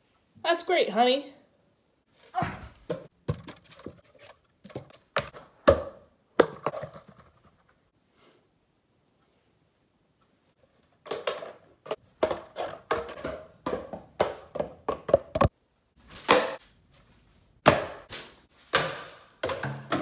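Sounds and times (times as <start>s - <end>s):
object bouncing down wooden stairs: 2.4s - 4.0s, 4.6s - 7.4s, 11.0s - 15.5s, 18.7s - 20.0s.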